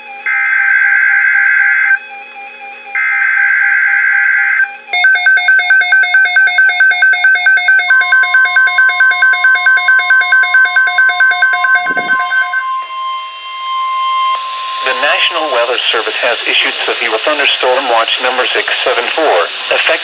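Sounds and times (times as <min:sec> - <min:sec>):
steady warning alarm tone: 0:00.0 - 0:18.0
raspy data tones: 0:05.0 - 0:12.9, 0:14.2 - 0:16.8
rapid high beeping: 0:05.0 - 0:16.8.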